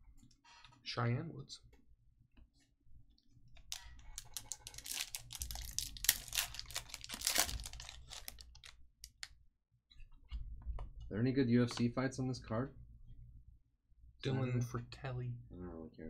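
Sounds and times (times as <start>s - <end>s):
foil pack crinkling as torn: 3.7s - 9.3s.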